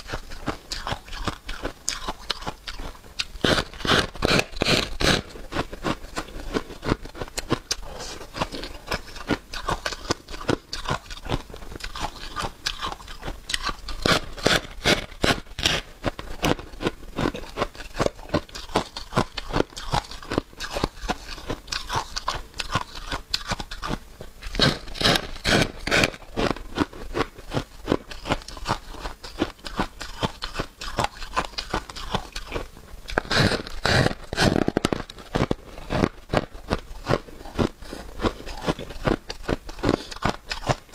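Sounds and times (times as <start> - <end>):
person crunching frost: 0.0 - 40.9.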